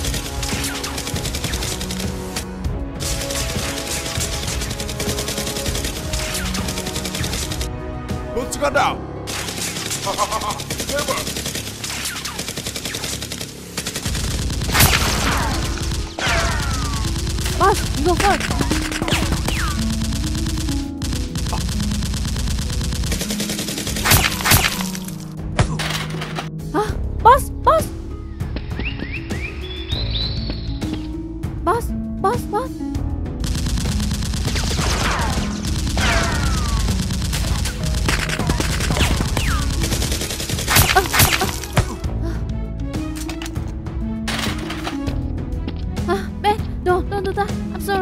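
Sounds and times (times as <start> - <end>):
rapid automatic gunfire: 0.0 - 2.4, 3.0 - 7.7, 9.3 - 25.2, 33.4 - 41.8
background music: 0.0 - 48.0
loud gunshots: 3.0 - 7.7, 9.3 - 25.2, 33.4 - 42.0.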